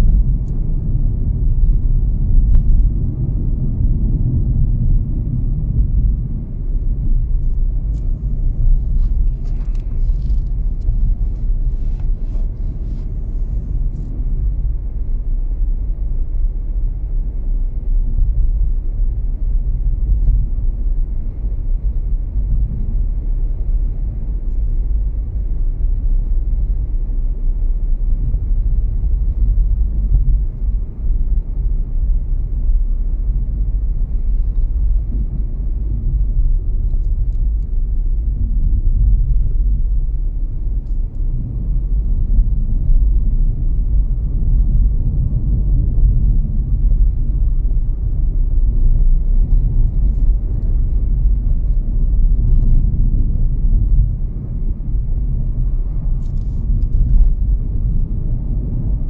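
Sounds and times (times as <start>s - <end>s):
car tyre and engine rumble: 0.0s - 59.0s.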